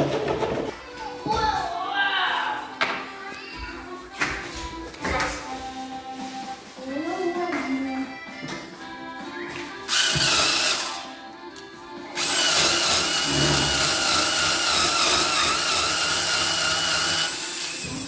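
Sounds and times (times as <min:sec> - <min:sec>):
cordless drill whining: 0:09.9 - 0:11.0, 0:12.2 - 0:18.0.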